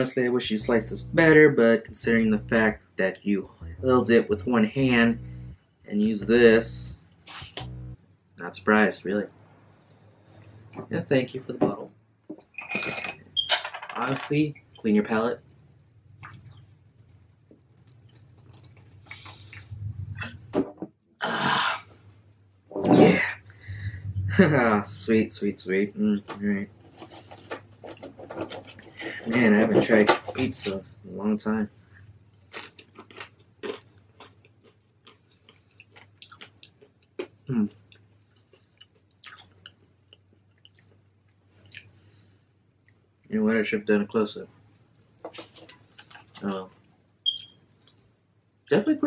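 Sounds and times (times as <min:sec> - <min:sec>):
short hum: 0:00.5 - 0:02.8, 0:03.5 - 0:08.0, 0:23.6 - 0:24.7
person swallowing: 0:22.8 - 0:24.6
crunchy pizza chewing: 0:26.8 - 0:29.4, 0:32.3 - 0:41.0.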